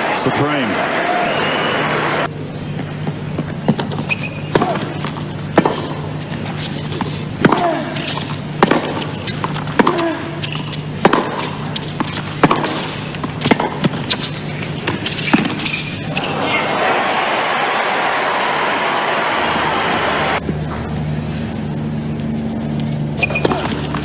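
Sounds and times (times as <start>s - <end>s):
steady low hum: 1.7s - 24.0s
racket striking tennis ball: 3.7s - 16.3s.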